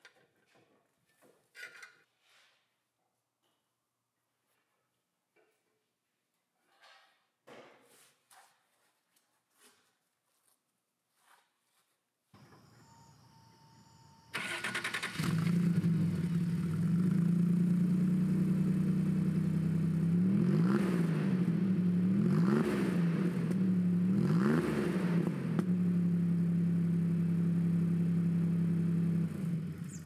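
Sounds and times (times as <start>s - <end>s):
engine starter cranking: 12.5s - 15.9s
engine revving: 14.3s - 30.0s.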